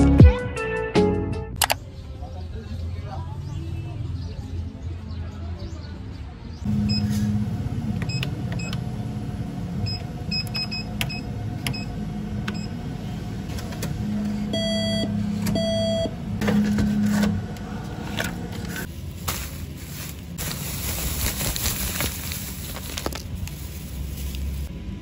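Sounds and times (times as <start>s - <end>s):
cash dispenser whirring: 6.7s - 18.9s
keypad beeps: 8.0s - 8.8s, 9.8s - 11.9s, 14.5s - 16.1s
longer beeps: 14.5s - 16.1s.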